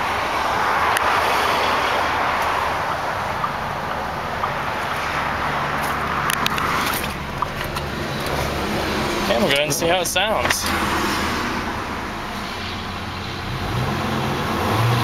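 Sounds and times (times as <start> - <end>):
highway traffic hiss: 0.0 - 13.7
pickup truck engine idling: 1.9 - 13.6.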